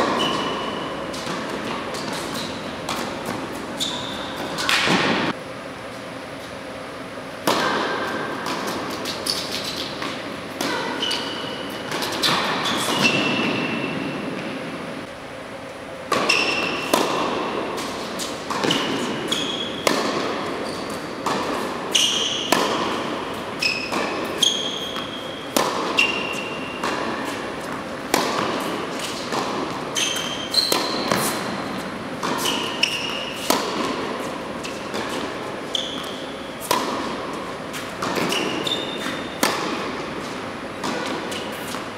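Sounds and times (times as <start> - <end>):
ball bouncing on court: 0.0 - 5.4, 16.1 - 40.0, 40.7 - 41.9
racquets striking tennis ball: 0.0 - 5.4, 7.3 - 15.2, 16.1 - 41.9
sneakers squeaking on court: 0.0 - 5.4, 7.6 - 14.7, 16.1 - 41.9.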